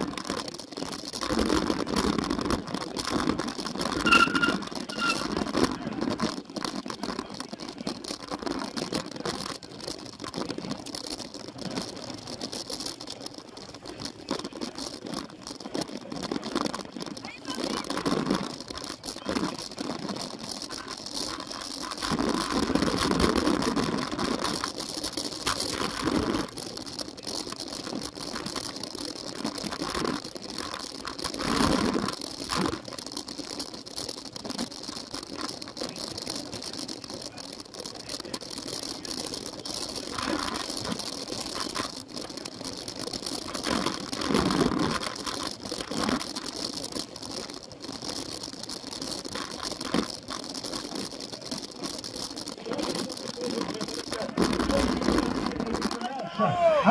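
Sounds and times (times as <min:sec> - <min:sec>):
bike rattling and clattering: 0:00.0 - 0:56.9
tyres on gravel: 0:00.0 - 0:56.9.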